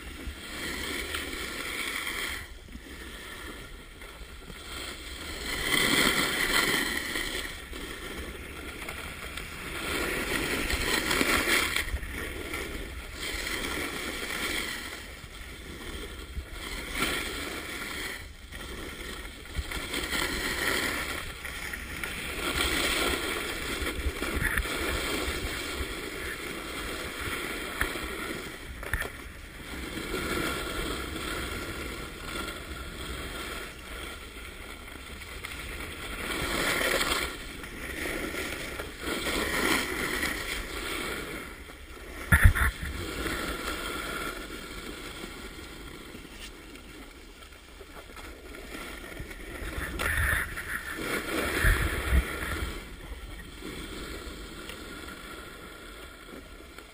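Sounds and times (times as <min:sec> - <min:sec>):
wind on microphone: 0:00.0 - 0:34.9, 0:35.6 - 0:46.3, 0:48.6 - 0:56.9
snowboards carving on snow: 0:00.0 - 0:56.9.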